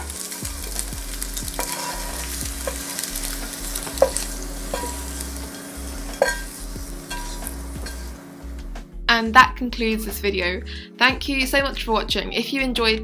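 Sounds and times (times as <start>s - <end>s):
spatula scraping frying pan: 0.0s - 8.2s.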